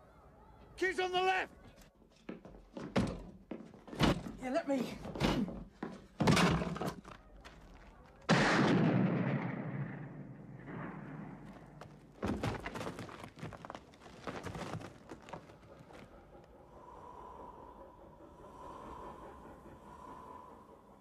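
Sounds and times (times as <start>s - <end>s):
pistol shot with echo: 8.3s - 11.4s.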